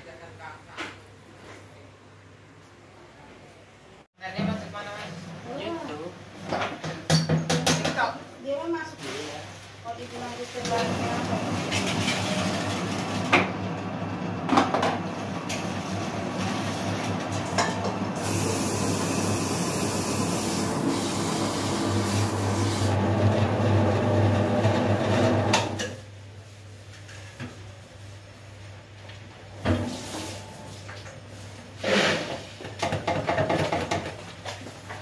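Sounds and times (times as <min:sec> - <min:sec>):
dough mixer humming: 0:10.9 - 0:25.8.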